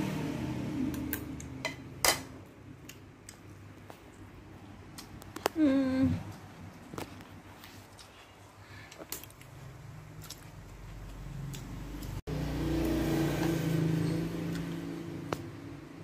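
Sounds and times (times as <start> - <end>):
vehicle engine passing: 0.0 - 1.6, 9.6 - 16.0.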